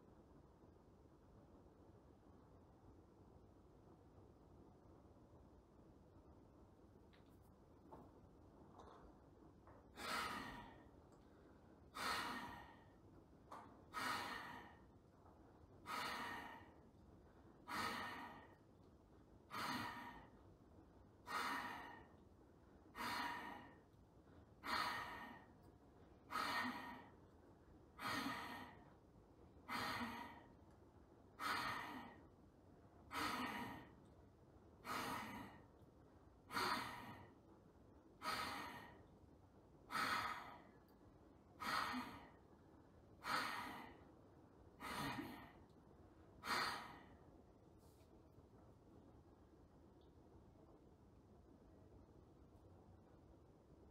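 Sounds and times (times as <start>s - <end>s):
forceful rhythmic breaths: 9.7s - 20.6s, 21.2s - 30.7s, 31.3s - 32.4s, 38.2s - 48.1s.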